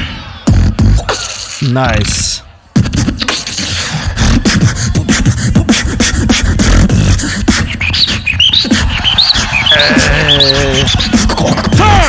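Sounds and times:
beatbox kick and snare hits: 0:00.5 - 0:01.6, 0:02.8 - 0:12.0
beatbox bass sliding in pitch: 0:00.5 - 0:01.7, 0:02.8 - 0:12.0.

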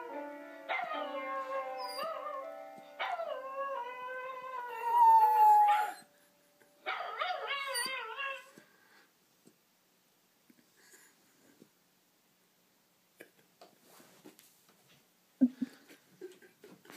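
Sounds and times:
piano chords: 0:00.0 - 0:04.9
dog howling: 0:00.8 - 0:06.1.

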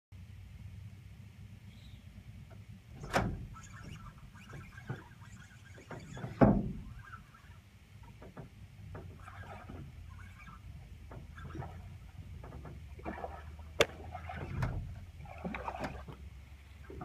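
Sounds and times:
fishing reel ticking: 0:03.6 - 0:06.4
heavy thumps on boat deck: 0:06.2 - 0:06.9.

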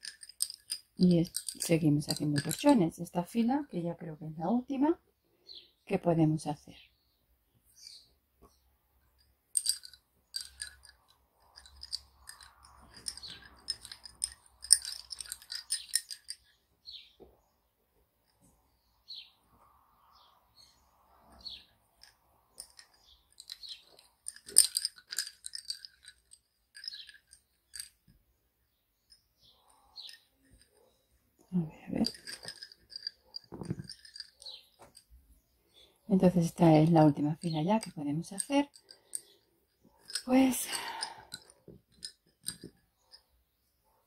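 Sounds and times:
lace bobbins clicking: 0:00.0 - 0:03.8, 0:09.1 - 0:16.6, 0:21.2 - 0:28.2, 0:29.0 - 0:35.2, 0:36.2 - 0:43.2.

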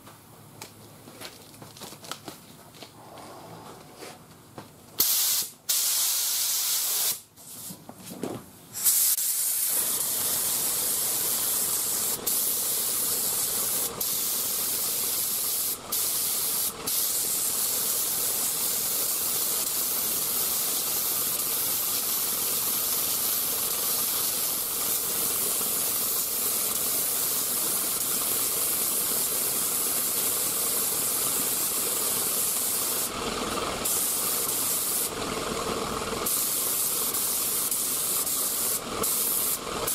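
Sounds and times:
spray gun hissing: 0:05.0 - 0:07.2, 0:08.8 - 0:33.2, 0:33.8 - 0:35.2, 0:36.2 - 0:39.9.

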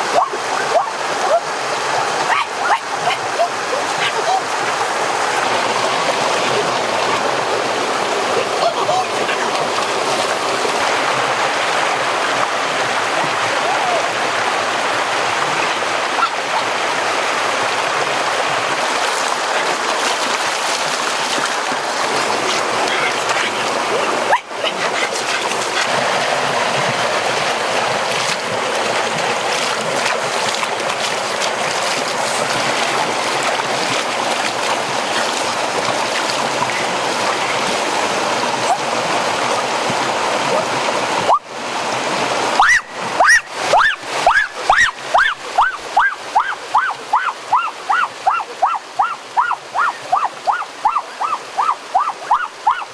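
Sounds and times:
stream rushing over rocks: 0:00.0 - 0:52.9
hands splashing in water: 0:28.1 - 0:37.4.

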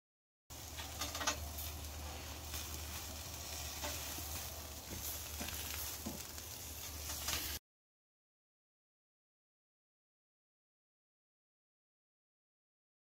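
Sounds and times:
food sizzling on a grill: 0:00.5 - 0:07.6.

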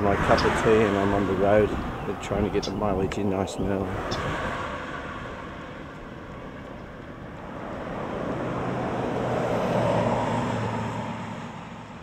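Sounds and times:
pickup truck driving past: 0:03.7 - 0:12.0.

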